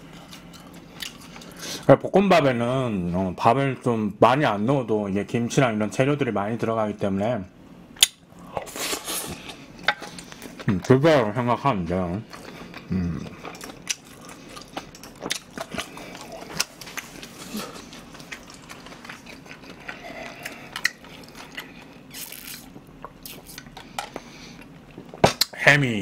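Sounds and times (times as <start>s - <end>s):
person chewing food: 0.0s - 1.9s, 8.4s - 11.1s, 12.2s - 25.5s.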